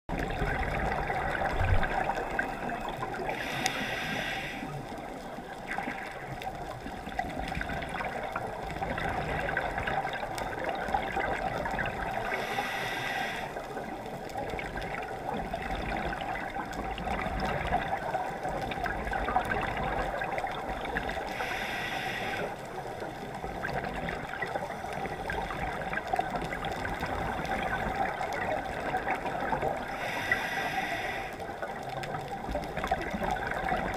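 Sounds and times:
exhaled bubbles rushing: 0.1s - 3.6s, 5.4s - 12.4s, 13.8s - 21.3s, 23.2s - 30.0s, 31.8s - 33.9s
muffled underwater hiss: 0.1s - 33.9s.

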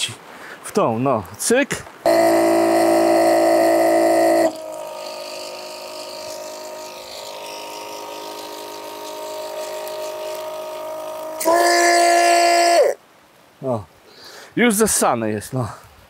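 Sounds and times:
water pump motor humming: 2.1s - 13.0s.

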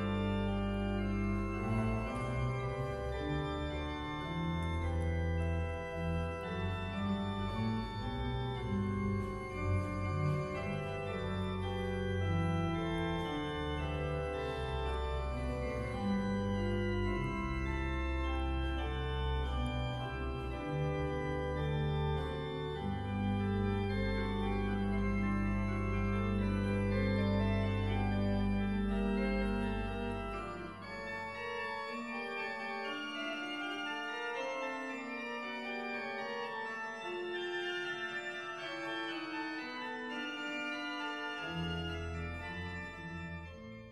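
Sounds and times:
deep organ bass notes: 0.0s - 31.9s
organ chords: 0.0s - 43.9s.

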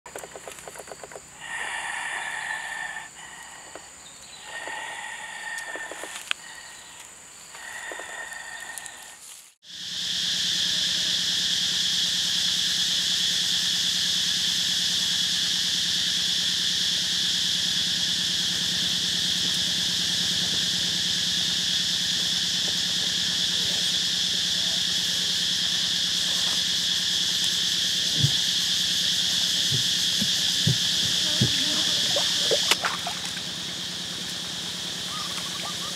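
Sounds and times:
insect chorus with high drone: 0.1s - 35.9s
drawn-out pitched calls: 19.7s - 32.8s.

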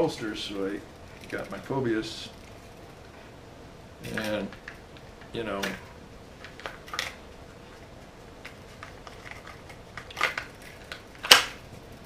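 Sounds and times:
pistol clicking in holster: 9.3s - 11.6s.

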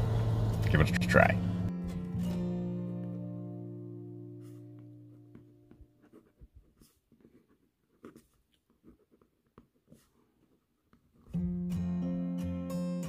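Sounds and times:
guitar notes: 0.0s - 5.8s, 11.3s - 13.0s
pencil scratching on paper: 4.3s - 11.3s.

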